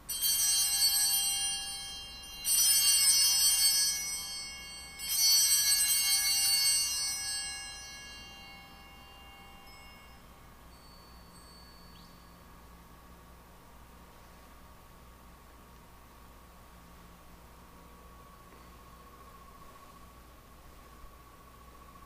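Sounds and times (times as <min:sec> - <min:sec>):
small altar bells ringing: 0:00.0 - 0:13.5.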